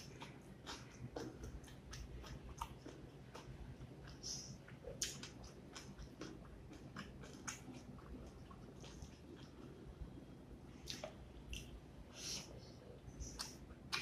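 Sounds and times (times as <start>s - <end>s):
chewing: 0.0s - 9.8s, 13.2s - 14.0s.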